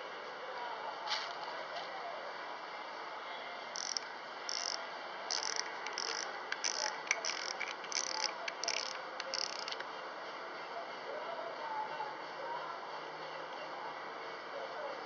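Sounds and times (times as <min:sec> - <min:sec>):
fishing reel drag clicking: 0:03.8 - 0:09.8.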